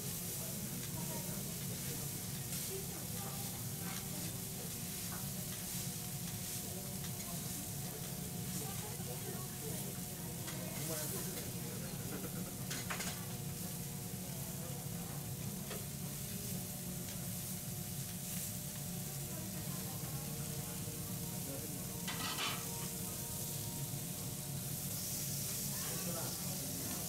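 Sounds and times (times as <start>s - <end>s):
food sizzling on a griddle: 0.0s - 27.0s
metal spatula scraping: 22.1s - 22.7s.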